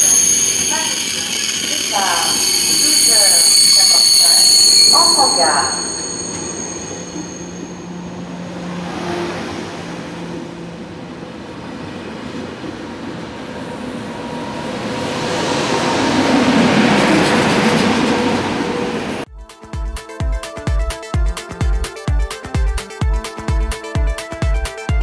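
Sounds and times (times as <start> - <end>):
train wheels rumbling on rail: 1.9 - 19.2.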